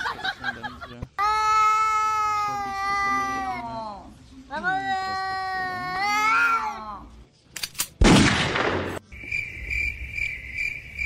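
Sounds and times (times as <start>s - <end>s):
high pulsing chirping tone: 9.1s - 11.0s.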